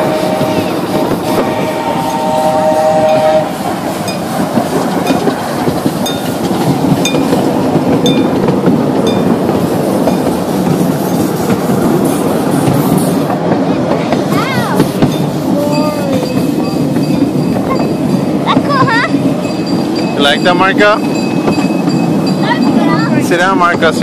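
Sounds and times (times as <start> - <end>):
steam whistle chord: 0.0 - 3.7
train cars rumbling and clacking: 0.0 - 24.0.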